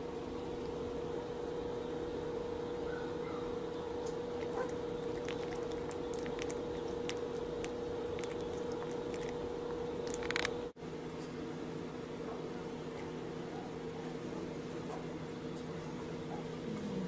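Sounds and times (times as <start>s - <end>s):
steady low hum: 0.0s - 17.0s
puppy mouth clicks and smacks: 4.1s - 9.4s, 10.0s - 10.6s.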